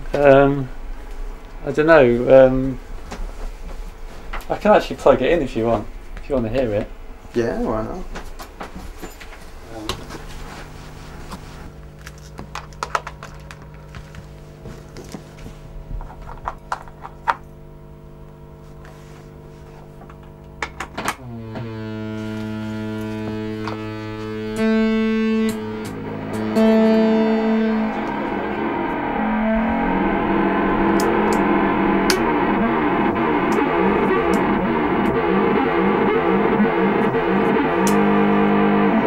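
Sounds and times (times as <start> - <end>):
distorted electronic droning: 0.0 - 8.0, 21.2 - 39.0
electrical hum: 0.0 - 39.0.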